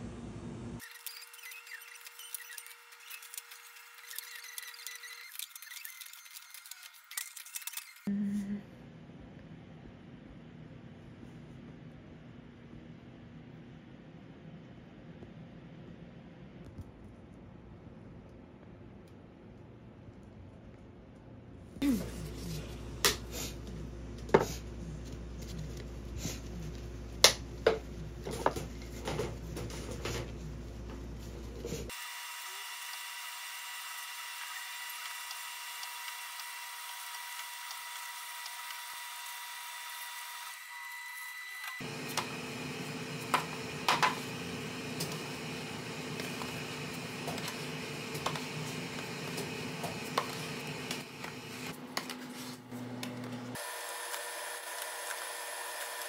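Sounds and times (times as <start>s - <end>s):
machine whine: 31.9s - 51.8s.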